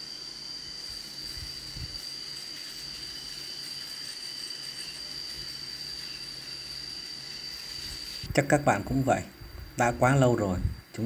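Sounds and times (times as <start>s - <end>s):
electric shaver whining: 0.0s - 8.3s.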